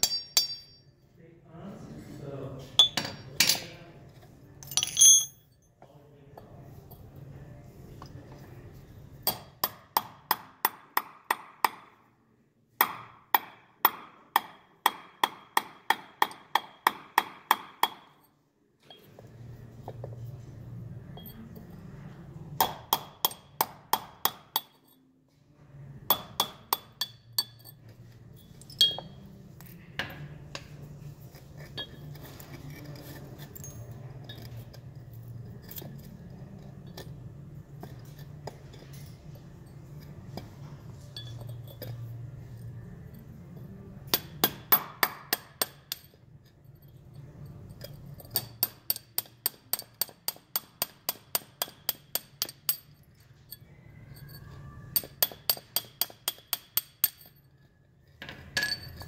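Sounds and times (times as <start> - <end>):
faint metal clinks: 4.6 - 5.8, 20.9 - 22.0, 27.3 - 29.8, 31.6 - 37.2, 37.8 - 43.9
hammer tapping steel chisel: 22.6 - 25.0, 26.1 - 27.9, 28.6 - 42.6, 44.1 - 59.0.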